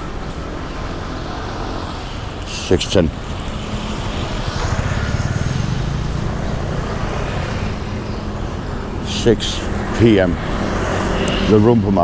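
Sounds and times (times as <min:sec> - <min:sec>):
steady traffic noise: 0:00.0 - 0:12.0
vehicle engine passing close: 0:03.2 - 0:12.0.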